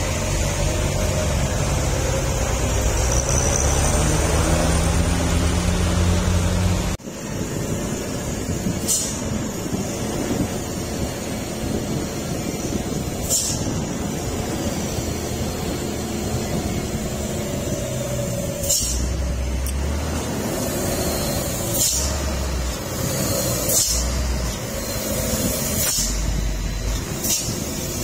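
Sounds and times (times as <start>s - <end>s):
truck diesel engine low speed: 0.0s - 28.0s
air-brake hisses: 7.1s - 28.0s.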